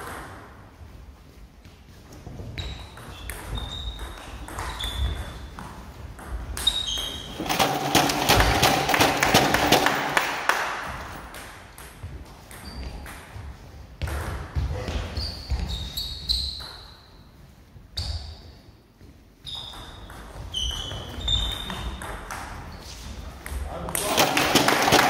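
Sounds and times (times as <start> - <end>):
rapid clapping: 7.5 - 11.1, 24.0 - 25.0.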